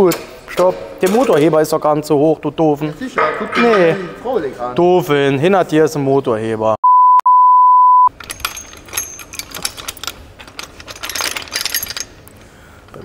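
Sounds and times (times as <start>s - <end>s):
tools clinking and rattling: 0.1s - 1.5s, 8.1s - 13.0s
censor beep: 6.8s - 8.1s.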